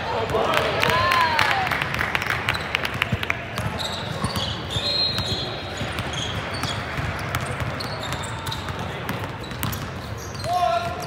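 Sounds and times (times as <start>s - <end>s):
sneaker squeaks: 2.4s - 11.0s
basketball bouncing on wooden floor: 5.2s - 9.9s.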